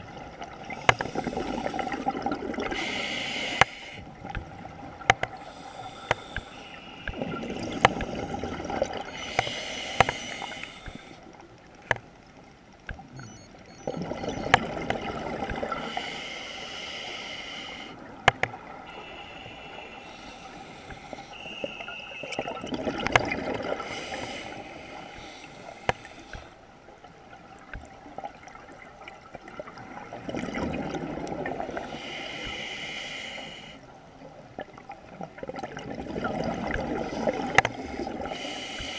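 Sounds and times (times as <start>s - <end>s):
regulator breathing underwater: 0.7s - 4.1s, 5.3s - 11.4s, 15.6s - 18.1s, 18.8s - 22.6s, 23.6s - 26.6s, 31.6s - 33.9s, 36.9s - 38.9s
exhaled bubbles rushing: 1.1s - 2.8s, 7.1s - 9.1s, 22.2s - 23.9s, 29.5s - 31.8s, 35.3s - 38.3s.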